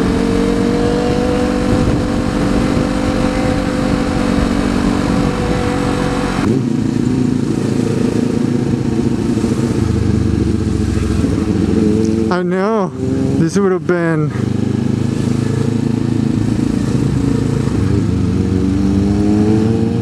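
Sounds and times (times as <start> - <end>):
wind noise on microphone: 0.0 - 10.3
motorcycle engine running: 0.0 - 20.0.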